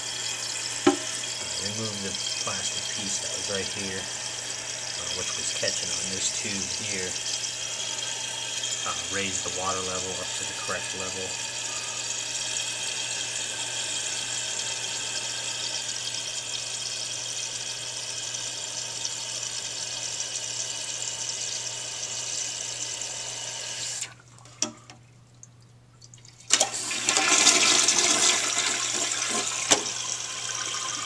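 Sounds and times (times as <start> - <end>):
toilet fill valve hissing: 0.0 - 24.2, 26.5 - 31.0
water rushing from toilet tank: 0.0 - 24.7, 26.4 - 31.0
toilet flush lever clunk: 0.8 - 1.2, 29.0 - 30.0.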